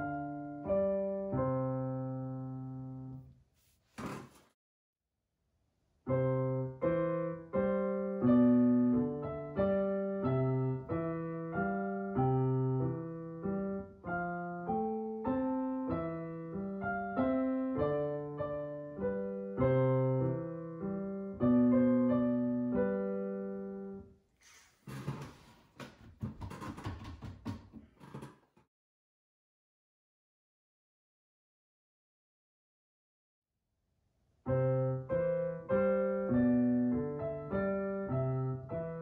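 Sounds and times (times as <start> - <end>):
piano chords played slowly: 0.0 - 3.2, 6.1 - 24.1, 34.5 - 39.0.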